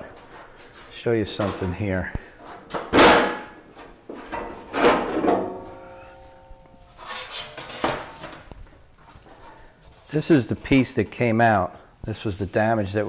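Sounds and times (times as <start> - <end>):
metal panels clattering: 0.0 - 8.6
sheet metal clanking: 1.3 - 8.5.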